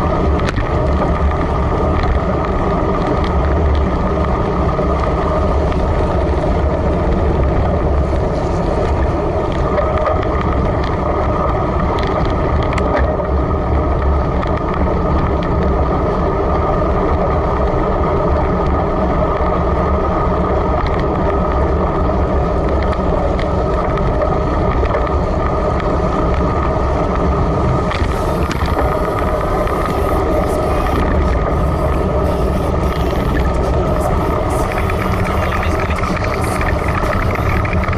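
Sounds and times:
wind rush: 0.0s - 37.9s
tyres on wet road: 20.4s - 37.9s.

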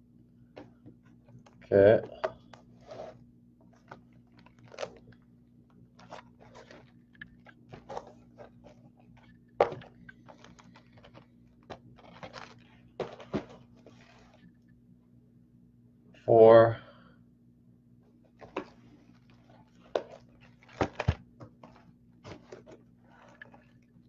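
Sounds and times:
cardboard boxes sliding and rustling: 2.7s - 3.2s.

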